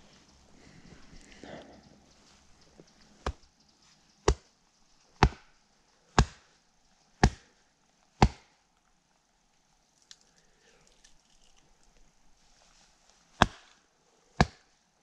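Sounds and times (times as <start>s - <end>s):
blade chopping wood: 5.2s - 5.5s, 6.2s - 6.4s, 8.2s - 8.5s, 13.4s - 13.7s.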